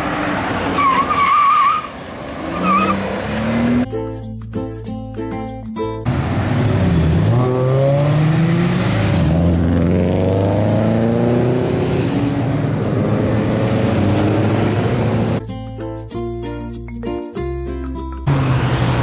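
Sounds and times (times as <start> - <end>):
car engine revving hard: 0.0 - 3.8, 6.1 - 15.4, 18.3 - 19.0.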